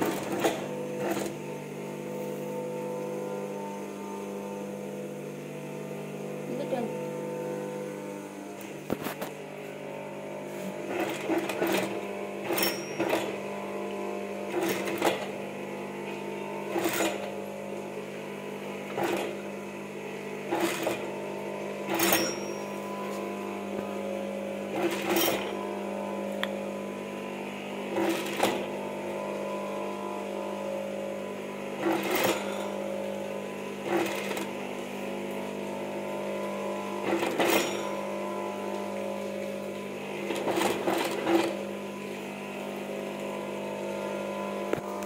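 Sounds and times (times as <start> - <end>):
sewing machine stitching: 0.0 - 1.4, 10.7 - 13.6, 14.5 - 15.4, 16.1 - 17.4, 18.8 - 19.5, 20.4 - 21.2, 21.8 - 23.2, 24.7 - 25.6, 27.9 - 28.9, 31.8 - 32.8, 33.8 - 34.8, 37.0 - 38.0, 40.1 - 41.7
steady hum: 0.1 - 12.9.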